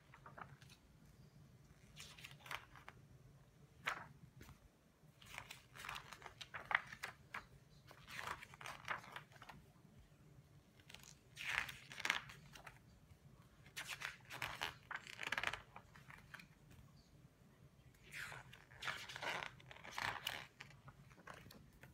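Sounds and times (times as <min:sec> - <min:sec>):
book pages rustling: 0:00.0 - 0:01.0, 0:01.8 - 0:03.0, 0:03.7 - 0:09.6, 0:10.7 - 0:12.9, 0:13.6 - 0:17.0, 0:18.0 - 0:21.9.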